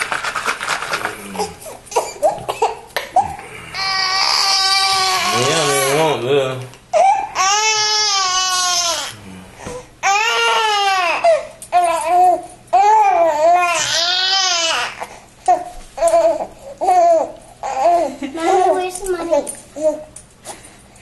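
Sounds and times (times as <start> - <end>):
baby crying: 1.3 - 6.2, 6.9 - 9.2, 10.0 - 18.7.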